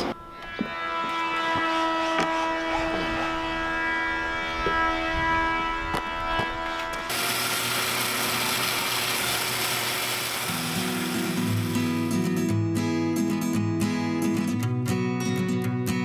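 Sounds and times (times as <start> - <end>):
machine hum: 3.4 - 12.2
power saw running: 6.7 - 12.4.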